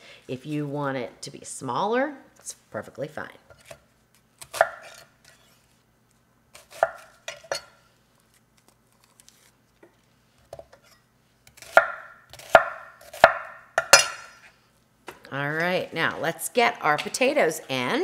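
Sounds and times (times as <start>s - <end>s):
knife chopping on wooden board: 11.5s - 14.3s.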